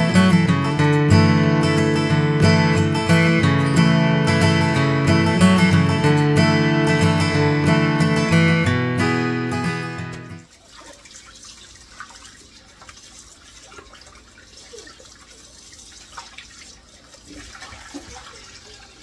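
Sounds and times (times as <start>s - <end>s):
splashes and knocks of washing: 10.3s - 19.0s
faucet running into metal bowl: 10.4s - 19.0s.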